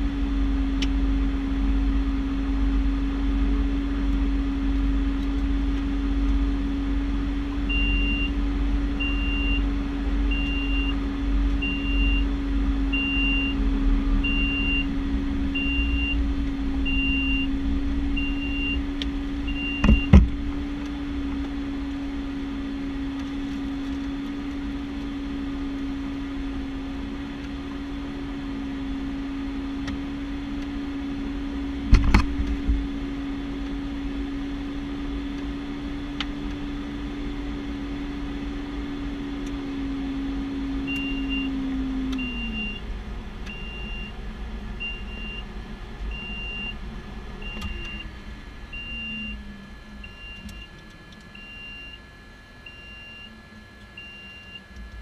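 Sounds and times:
turboprop engines idling: 0.0s - 55.0s
short electronic beeps: 7.7s - 8.4s, 9.0s - 9.6s, 10.3s - 11.0s, 11.6s - 12.3s, 12.9s - 13.6s, 14.2s - 15.0s, 15.6s - 16.2s, 16.8s - 17.5s, 18.2s - 18.9s, 19.5s - 20.1s, 46.1s - 46.8s, 47.4s - 48.1s, 48.7s - 49.4s, 50.0s - 52.1s, 52.7s - 54.8s.

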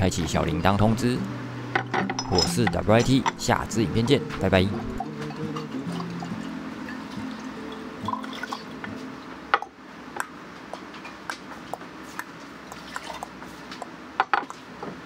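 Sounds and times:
water poured into teapot: 5.9s - 8.7s
glassware taps and clicks: 9.5s - 9.8s, 14.2s - 14.6s.

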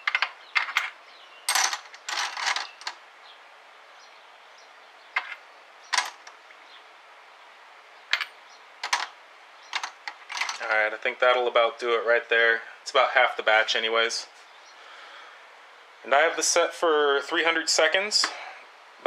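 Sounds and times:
brass cases clinking into wire basket: 0.0s - 3.0s, 5.2s - 6.3s, 8.1s - 9.1s, 9.7s - 10.7s.

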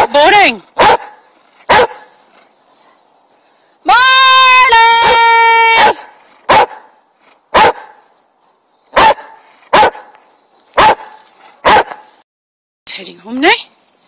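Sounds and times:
dog barking: 0.8s - 2.1s, 5.1s - 6.9s, 7.5s - 8.0s, 8.9s - 10.1s, 10.8s - 12.0s.

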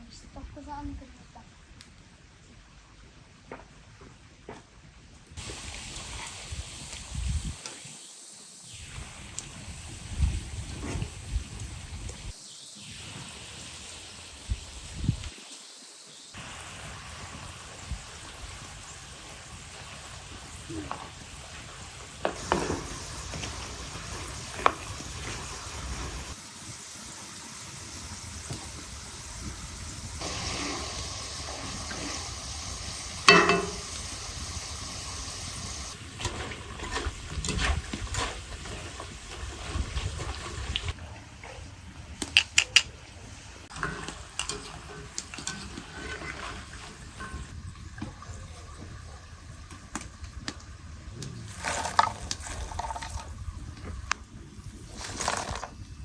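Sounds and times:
food frying and sizzling: 5.4s - 56.0s
utensils clinking against a pan: 33.3s - 34.1s, 43.7s - 47.5s.

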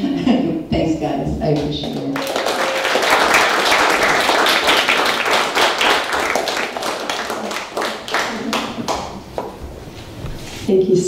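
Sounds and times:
audience applauding: 2.0s - 9.6s.

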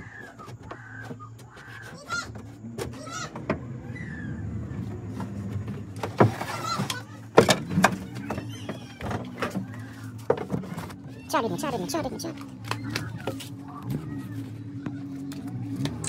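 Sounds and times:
wooden boards knocking and clattering: 5.6s - 11.0s.

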